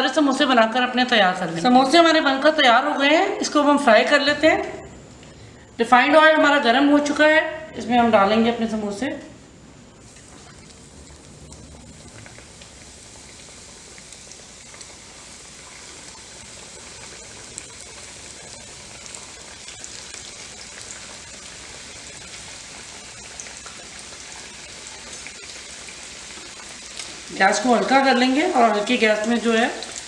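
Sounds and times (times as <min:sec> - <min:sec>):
deep-frying sizzle: 0:09.6 - 0:30.0
small pops of bubbling oil: 0:10.1 - 0:15.0, 0:25.0 - 0:27.3.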